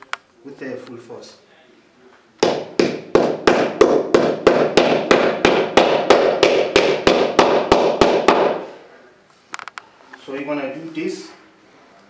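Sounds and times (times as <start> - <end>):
hammer strikes: 2.4 - 8.7.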